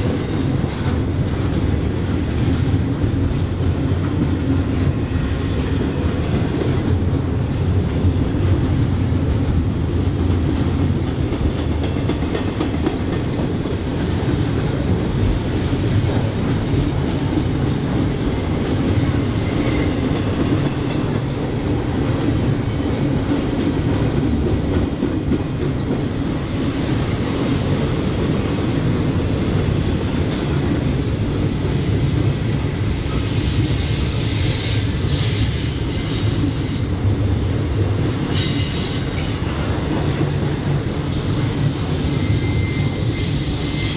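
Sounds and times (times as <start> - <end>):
train wheels running on rail: 0.0 - 43.9
high wheel squeal: 33.2 - 37.2, 38.3 - 39.5, 41.1 - 43.9.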